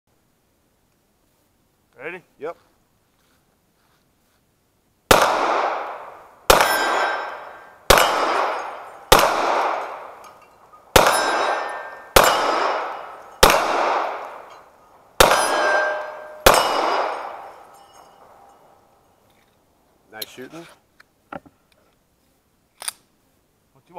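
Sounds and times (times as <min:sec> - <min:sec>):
pistol shots: 0:05.1 - 0:10.3, 0:10.9 - 0:14.6, 0:15.2 - 0:17.7
steel targets ringing: 0:06.5 - 0:19.2.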